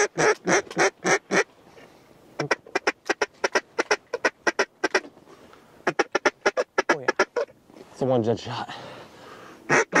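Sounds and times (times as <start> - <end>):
duck quacking: 2.4 - 5.1, 5.8 - 7.5, 9.7 - 10.0.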